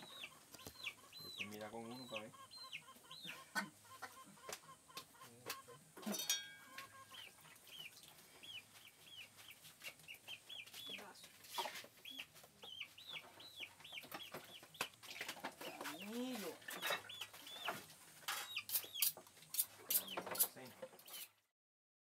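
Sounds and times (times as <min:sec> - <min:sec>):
faint bird chirping: 0:00.0 - 0:05.8, 0:06.6 - 0:19.2.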